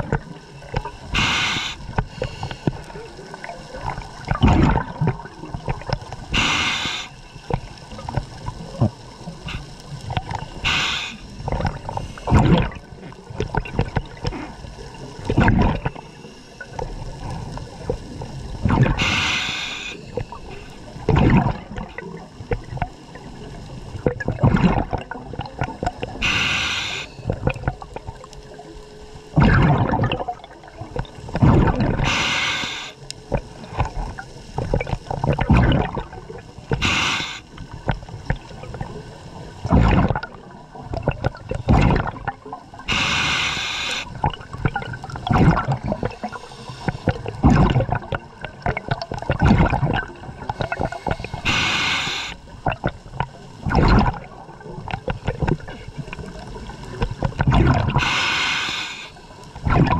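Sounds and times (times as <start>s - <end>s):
bubbling exhaled air: 0.0s - 28.2s, 29.4s - 59.9s
regulator hiss on inhalation: 1.1s - 2.8s, 6.3s - 7.4s, 10.5s - 12.3s, 19.0s - 20.7s, 26.2s - 27.2s, 32.0s - 33.0s, 36.7s - 37.5s, 42.9s - 44.1s, 46.0s - 47.2s, 50.5s - 52.4s, 58.0s - 59.4s.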